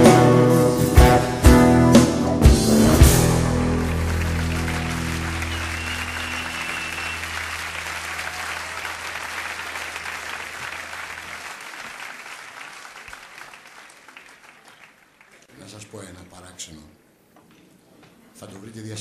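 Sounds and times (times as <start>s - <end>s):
audience applauding: 3.1s - 15.5s.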